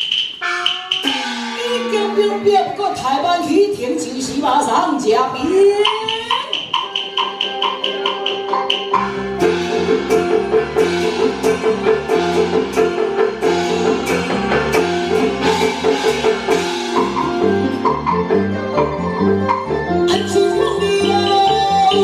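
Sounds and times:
opera backing band playing: 0.0s - 22.0s
wood block ticking: 5.8s - 9.0s.

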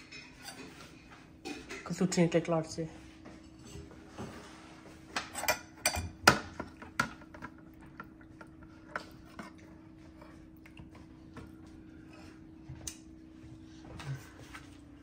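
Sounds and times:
metal spoon clinking on bowl: 5.4s - 6.2s.

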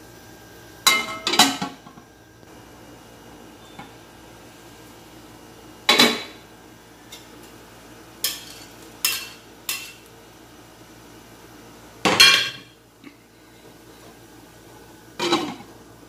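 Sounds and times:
metal spatula clinking: 8.2s - 10.0s.

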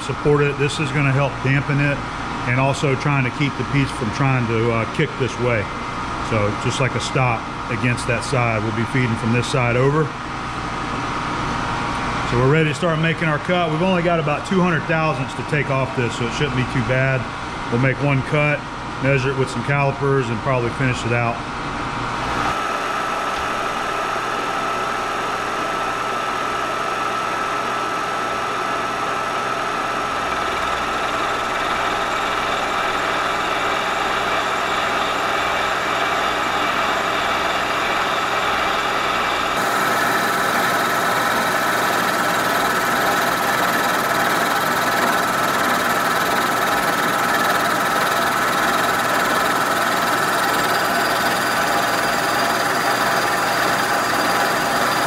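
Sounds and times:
milling machine whining: 22.2s - 55.0s.

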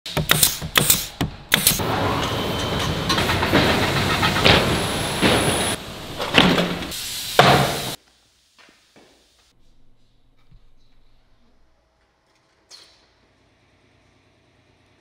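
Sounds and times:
pneumatic nail gun shots: 0.1s - 1.8s, 6.2s - 8.0s
edge-banding machine running: 1.5s - 7.0s
panels knocking: 1.7s - 8.0s.

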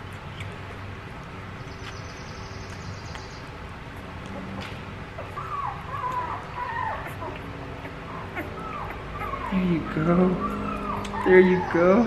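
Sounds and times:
low hum: 3.5s - 12.0s
puppy whimpering: 4.3s - 12.0s.

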